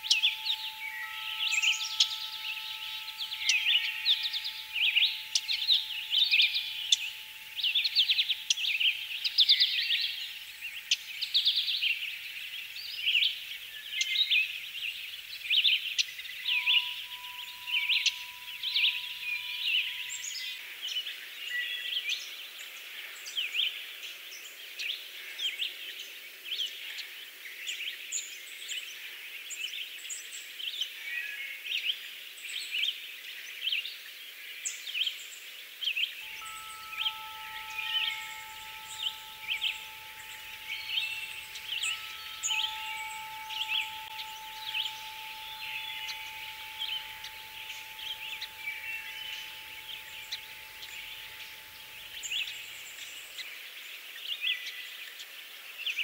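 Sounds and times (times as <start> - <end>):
faint steady tone: 0.0 - 22.0, 36.2 - 53.5
birds chirping and trilling: 0.0 - 22.3, 36.2 - 53.5.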